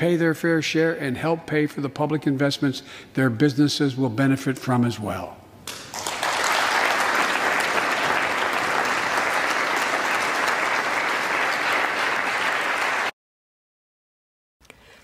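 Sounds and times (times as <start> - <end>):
dense applause: 5.7 - 13.2.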